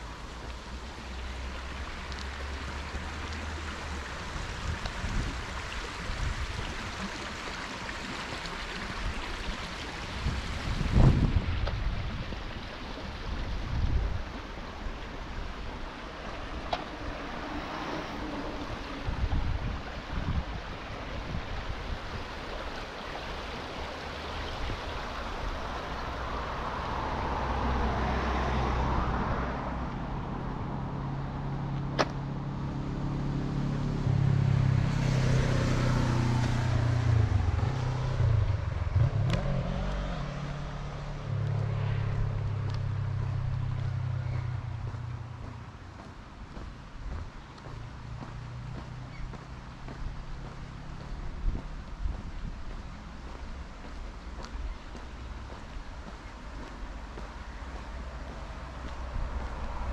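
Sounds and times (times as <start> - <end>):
street traffic: 0.0 - 59.9
wind buffeting microphone: 8.8 - 17.4, 18.2 - 22.7, 41.3 - 59.9
vehicle engine humming: 10.9 - 21.0, 22.9 - 59.9
car passing: 14.3 - 59.9.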